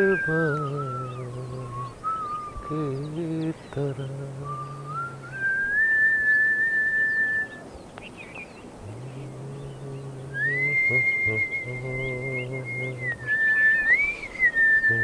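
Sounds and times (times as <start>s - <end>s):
person whistling sustained notes: 0.0s - 3.0s, 4.4s - 7.6s, 10.3s - 15.0s
man singing long low notes: 0.0s - 5.8s, 8.8s - 15.0s.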